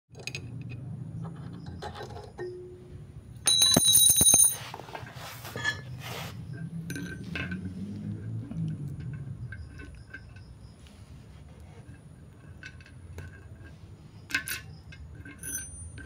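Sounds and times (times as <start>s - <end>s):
metal tools clinking: 0.1s - 2.8s, 3.4s - 11.2s, 11.8s - 16.0s
steady low hum: 0.8s - 16.0s
ringing metal clang: 1.7s - 4.7s, 5.5s - 6.1s, 6.9s - 7.7s, 14.2s - 16.0s.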